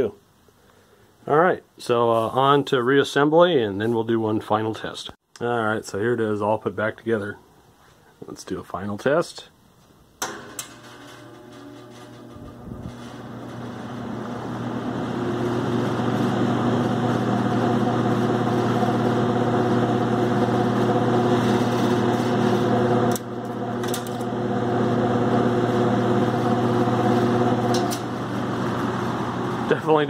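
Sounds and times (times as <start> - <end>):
fan clicks: 10.2 - 13.6, 23.1 - 24.2
box fan humming: 10.2 - 30.0.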